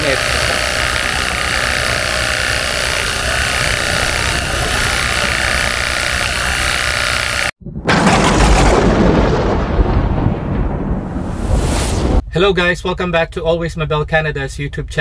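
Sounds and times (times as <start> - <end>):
pressure washer spraying metal: 0.0 - 7.5
low rumble: 0.0 - 12.5.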